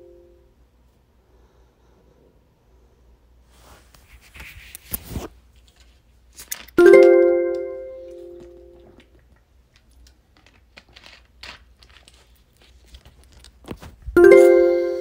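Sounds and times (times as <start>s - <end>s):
bell-like electronic chime: 14.2s - 15.0s.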